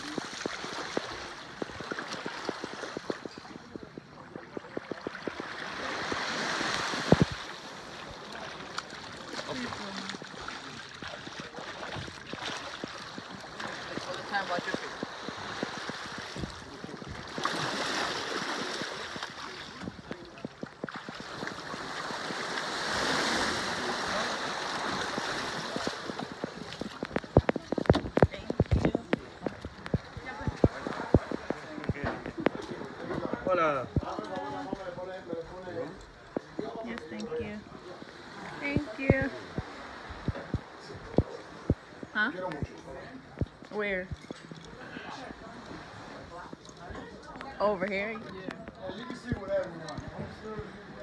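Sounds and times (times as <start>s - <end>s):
seawater sloshing around legs: 0.0s - 35.0s
small water splashes: 0.0s - 35.0s.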